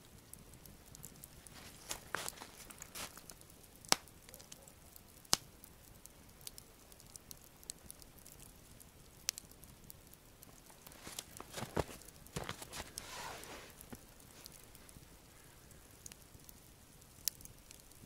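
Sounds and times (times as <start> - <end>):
campfire crackling: 0.0 - 18.0
sharp fire pops: 1.0 - 4.6, 5.2 - 8.5
rustle of movement: 1.4 - 3.4, 10.4 - 15.7.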